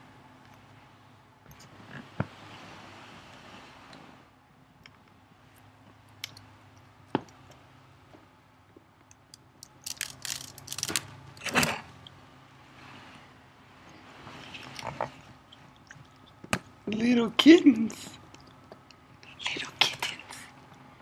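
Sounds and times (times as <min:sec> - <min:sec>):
faint steady hum: 0:00.0 - 0:21.0
rustling and crunching straw: 0:09.8 - 0:11.1.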